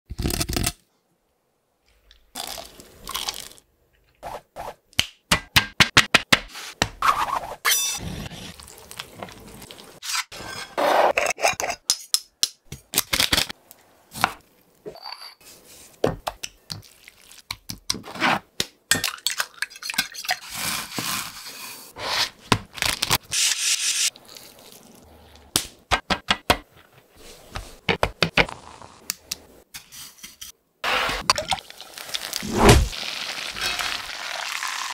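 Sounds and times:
chicken worked in wet batter: 15.5 - 18.0.

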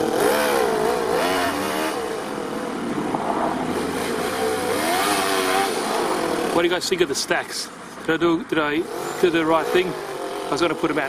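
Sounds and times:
toy truck nitro engine revving: 0.0 - 2.3, 3.7 - 6.6.

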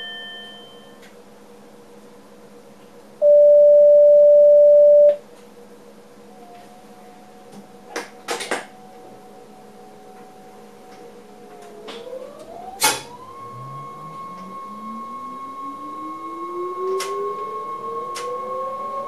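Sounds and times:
electronic warning tone: 3.2 - 5.2, 12.4 - 19.0.

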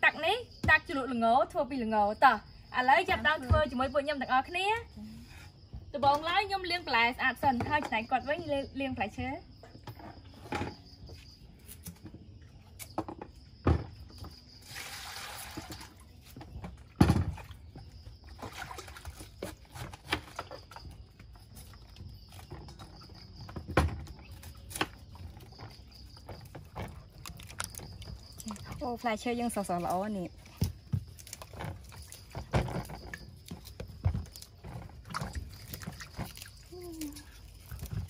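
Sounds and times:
crickets chirping: 0.0 - 38.0
water splashing into bowl: 18.3 - 19.3.

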